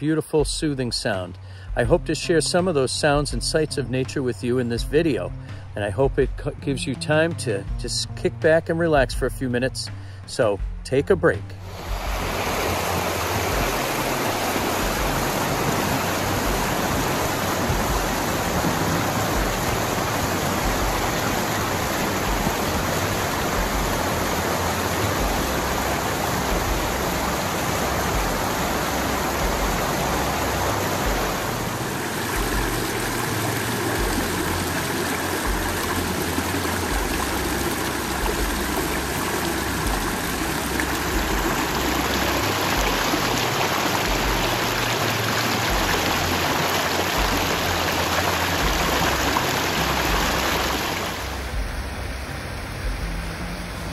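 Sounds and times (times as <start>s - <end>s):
stream rushing over rocks: 11.6s - 53.9s
water pouring over rock ledge: 11.7s - 51.6s.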